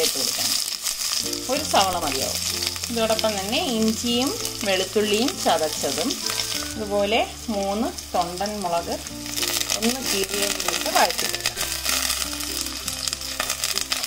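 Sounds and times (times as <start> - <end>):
onions sizzling in hot oil: 0.0 - 14.0
background music: 1.1 - 14.0.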